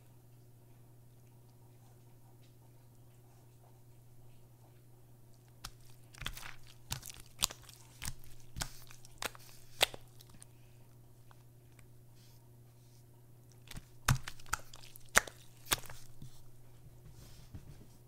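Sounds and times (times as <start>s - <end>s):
slime popping and crackling: 5.6s - 10.4s, 13.5s - 16.4s.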